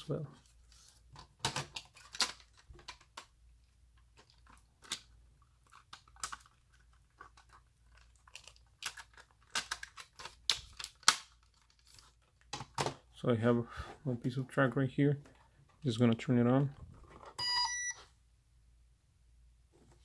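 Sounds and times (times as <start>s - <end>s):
plastic clicks and rattles: 1.2s - 3.3s.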